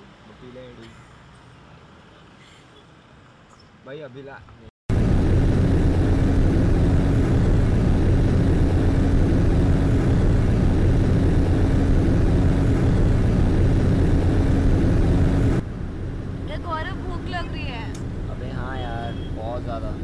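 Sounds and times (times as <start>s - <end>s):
road and wind noise: 0.0s - 20.0s
car engine drone: 4.9s - 20.0s.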